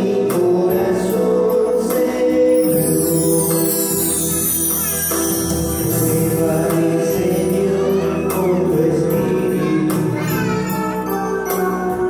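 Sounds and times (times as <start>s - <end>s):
instrumental accompaniment: 0.0s - 12.0s
light jingling percussion: 2.5s - 8.7s.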